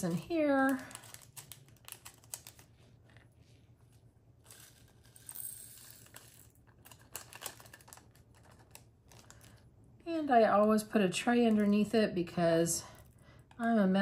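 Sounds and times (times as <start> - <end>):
plastic bag crinkling: 0.0 - 3.4, 5.9 - 9.8.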